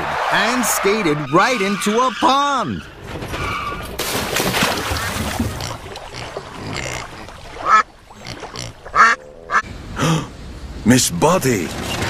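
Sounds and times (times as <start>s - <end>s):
car splashing into water: 3.9s - 5.6s
duck quacking: 5.6s - 9.6s.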